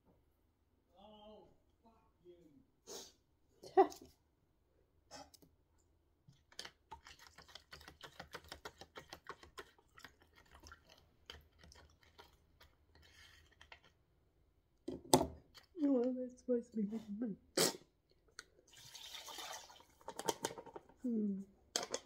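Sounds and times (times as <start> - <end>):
spoon scraping plastic packet: 6.3 - 14.0.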